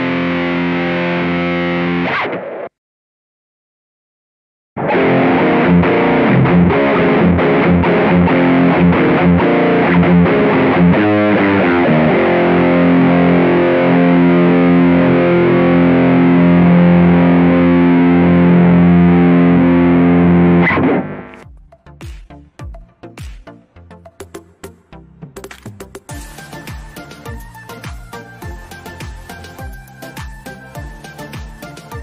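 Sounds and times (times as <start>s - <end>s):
distorted electric guitar riff: 0.0s - 2.8s, 4.8s - 21.4s, 26.1s - 32.0s.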